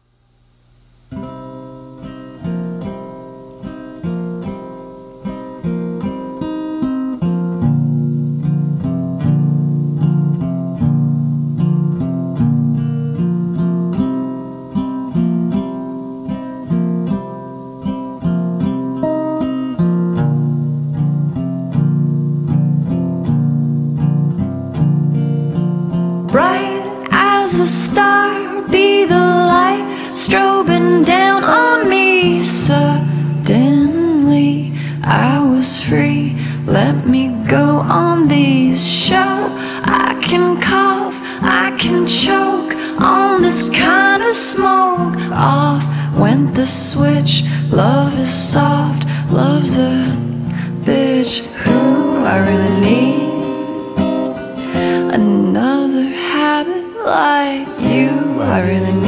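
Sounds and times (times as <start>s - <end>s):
acoustic guitar picking: 1.1s - 59.0s
woman singing: 26.3s - 59.0s.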